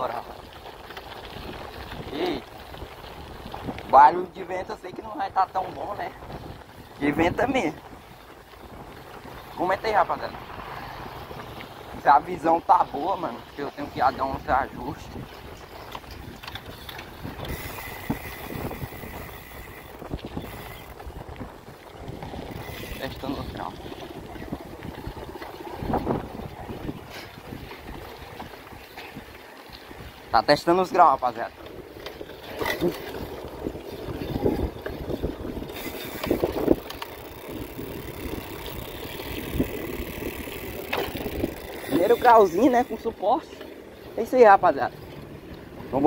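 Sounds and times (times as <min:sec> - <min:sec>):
bike rattling: 0:00.0 - 0:46.0
wind buffeting microphone: 0:00.0 - 0:46.0
bike knocks and rattles: 0:31.6 - 0:43.7.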